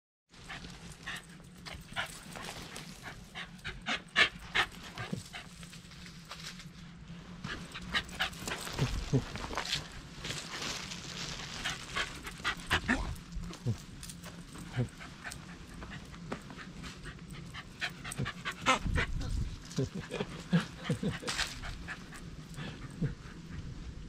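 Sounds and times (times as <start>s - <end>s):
dog panting: 0.4s - 5.7s, 7.5s - 9.2s, 11.6s - 24.0s
dog scurrying around: 7.5s - 13.1s.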